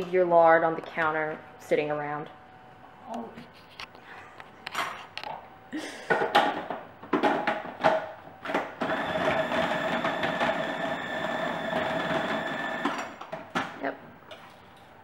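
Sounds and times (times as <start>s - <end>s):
food processor motor whine: 8.8s - 13.1s.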